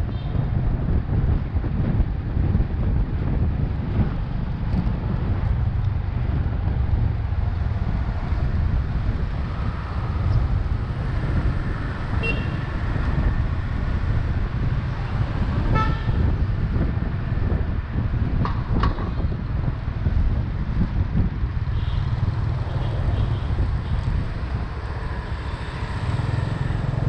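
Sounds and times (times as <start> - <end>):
motorbike road rumble: 0.0 - 27.0
wind buffeting: 0.0 - 27.0
vehicle horn toots: 12.2 - 12.7, 15.7 - 16.3.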